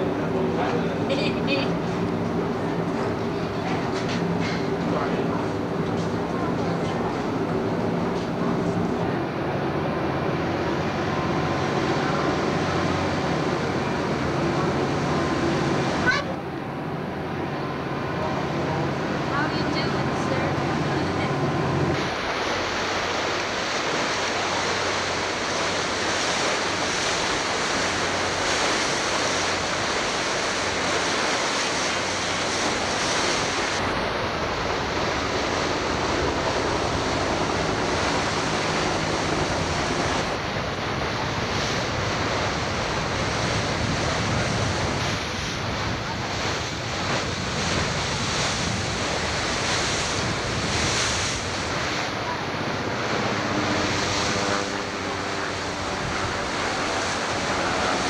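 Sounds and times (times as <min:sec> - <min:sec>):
water washing along hull: 0:00.0 - 0:58.0
wind on microphone: 0:21.2 - 0:58.0.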